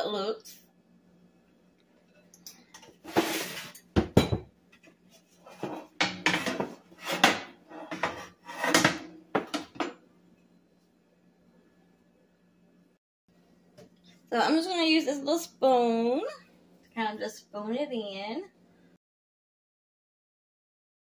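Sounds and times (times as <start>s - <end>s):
dishes clattering on a countertop: 2.4s - 4.9s, 5.5s - 10.0s.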